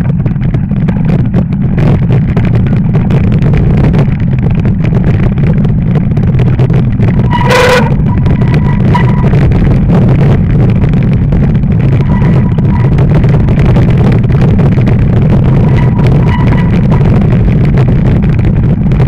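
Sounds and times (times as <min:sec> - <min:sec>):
tyres rolling over packed snow: 0:00.0 - 0:19.0
wind buffeting microphone: 0:00.0 - 0:19.0
short pitched tone: 0:07.2 - 0:09.4, 0:12.0 - 0:13.5, 0:15.5 - 0:17.1.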